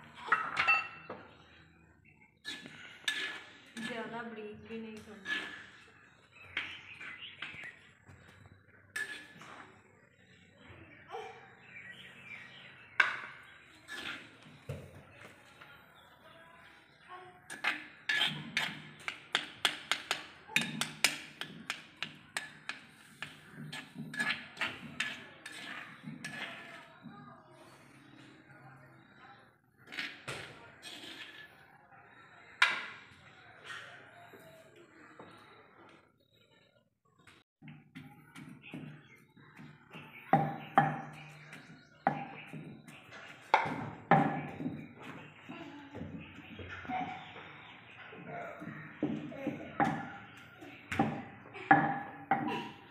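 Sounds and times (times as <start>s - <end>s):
wooden pestle pounding in mortar: 17.5s - 26.7s.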